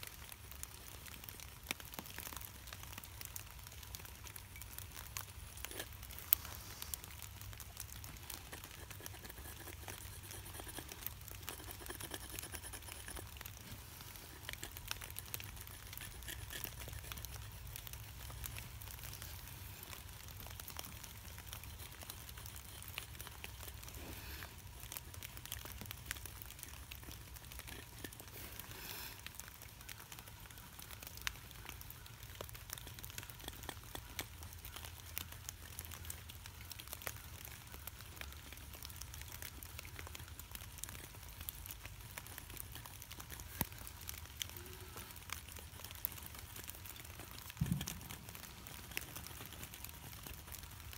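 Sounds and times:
light rain patter: 0:00.0 - 0:50.9
pencil scratching on wood: 0:08.5 - 0:13.5, 0:14.4 - 0:17.5.

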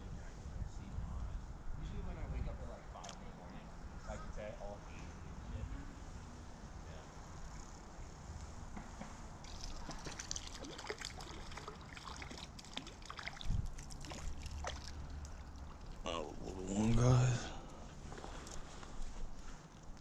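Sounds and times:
fish thrashing and splashing: 0:09.4 - 0:16.1
water trickling in creek: 0:09.4 - 0:17.0, 0:17.7 - 0:20.0.

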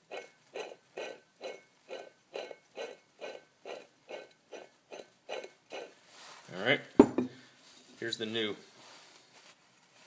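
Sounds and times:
water pump turned by hand: 0:00.0 - 0:06.0.

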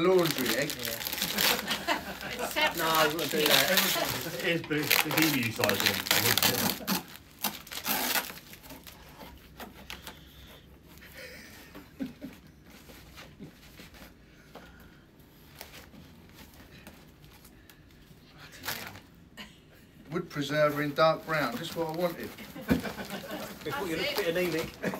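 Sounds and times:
paper and cardboard rustling: 0:00.0 - 0:11.1, 0:20.2 - 0:24.9.

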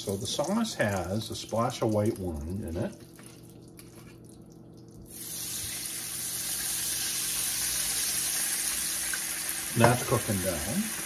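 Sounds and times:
wine sizzling in hot pan: 0:05.1 - 0:11.0.

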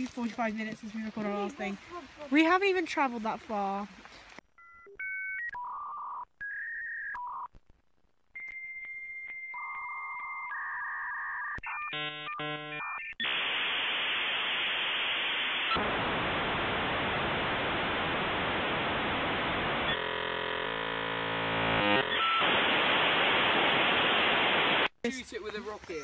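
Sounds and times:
electronic telephone beeps: 0:04.6 - 0:07.5, 0:08.4 - 0:13.4, 0:22.1 - 0:22.5
buzzy tone: 0:11.2 - 0:24.9
loud static hiss: 0:12.5 - 0:25.3.

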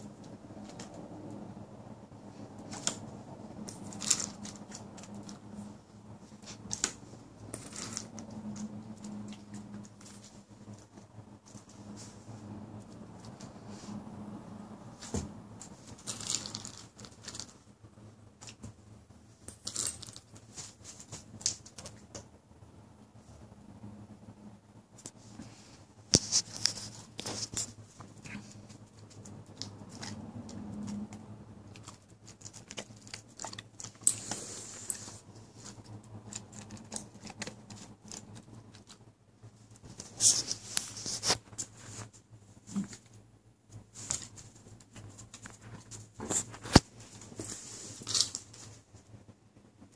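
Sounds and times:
dog crunching treats: 0:02.6 - 0:05.6, 0:15.9 - 0:17.6, 0:26.2 - 0:39.0.

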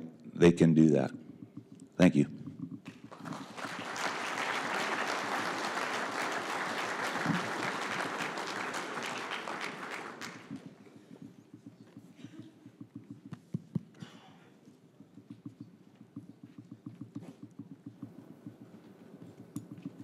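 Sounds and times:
audience applauding: 0:02.8 - 0:10.9.

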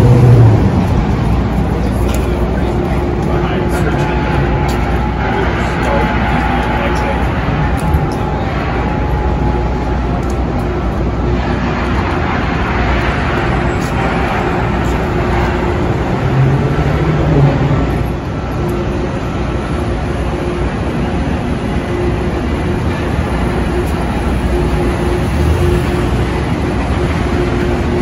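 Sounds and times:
city street traffic: 0:00.0 - 0:28.0
heavy vehicle passing close: 0:00.0 - 0:28.0.

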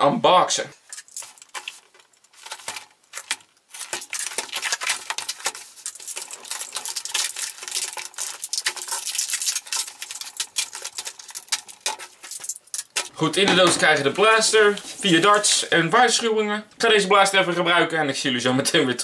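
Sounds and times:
clicks and scrapes: 0:00.8 - 0:15.6
cardboard and plastic crackling: 0:00.8 - 0:16.4.

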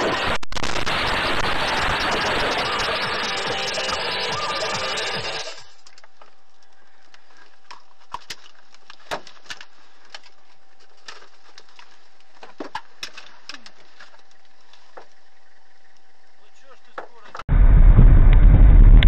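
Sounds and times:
sharp clicks and cracks: 0:00.3 - 0:14.6.

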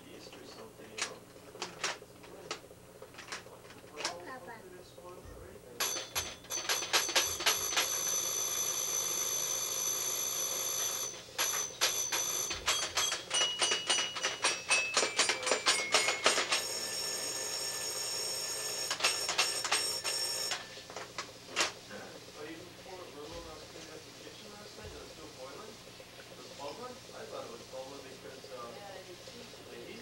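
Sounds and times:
toy keys clicking: 0:12.5 - 0:16.6.

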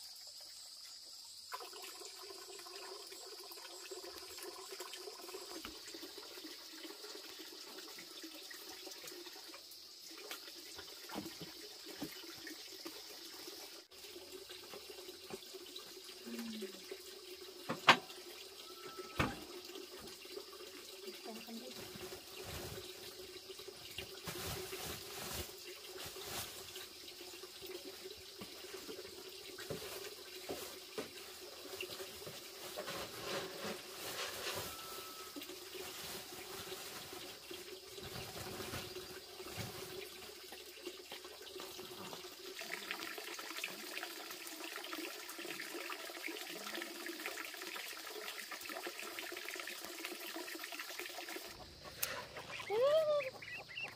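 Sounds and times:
water running from a tap: 0:00.0 - 0:53.9.

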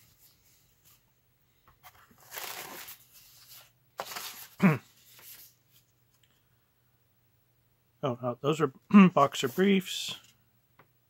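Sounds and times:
cardboard packaging rustling: 0:01.8 - 0:05.9.

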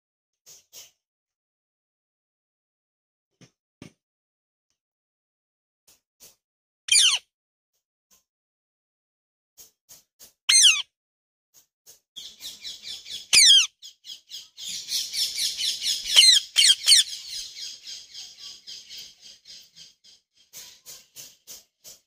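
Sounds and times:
parakeet rapid chatter: 0:06.9 - 0:07.2, 0:10.5 - 0:10.8, 0:13.4 - 0:13.7, 0:15.4 - 0:22.0
parakeet screeching: 0:06.9 - 0:07.2, 0:10.5 - 0:10.8, 0:13.3 - 0:13.7, 0:15.8 - 0:17.4.

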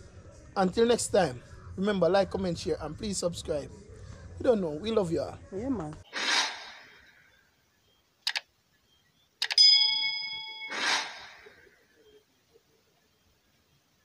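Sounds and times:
whoosh: 0:06.1 - 0:07.1, 0:10.7 - 0:11.6
clicks: 0:08.2 - 0:08.5, 0:09.4 - 0:09.7
bell-like ding: 0:09.6 - 0:10.9.

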